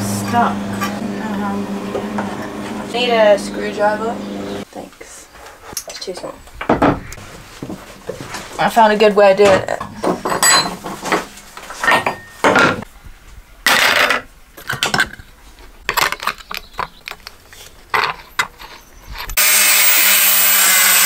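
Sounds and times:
angle grinder running: 0:00.0 - 0:04.6, 0:19.4 - 0:21.0.

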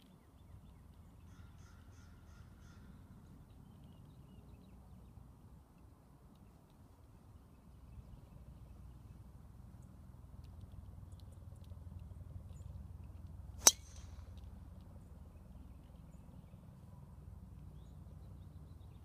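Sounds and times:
golf club striking ball: 0:13.6 - 0:14.4.

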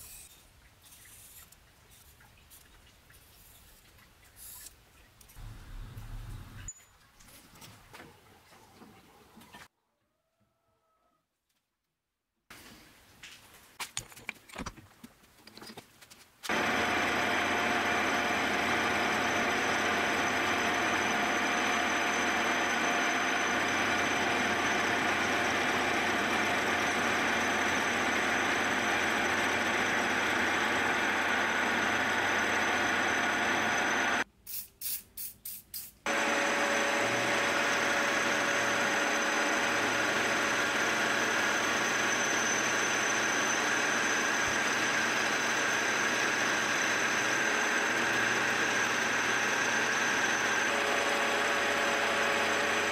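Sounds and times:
milling machine whining: 0:16.5 - 0:34.2, 0:36.1 - 0:52.9.

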